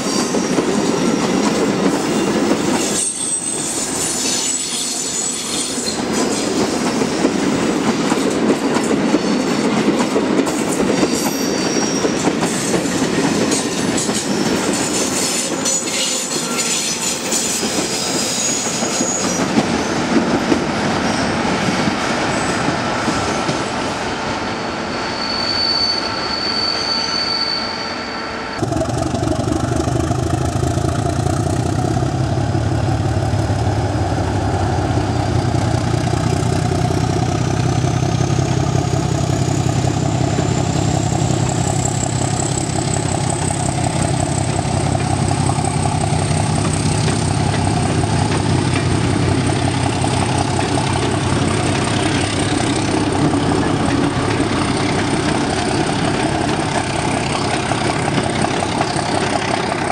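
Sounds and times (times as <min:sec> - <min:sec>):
train wheels rolling: 0:00.0 - 0:25.4, 0:28.6 - 0:59.9
diesel locomotive engine: 0:00.0 - 0:59.9
thin high squeal: 0:02.9 - 0:06.0, 0:11.1 - 0:12.2, 0:24.6 - 0:28.6.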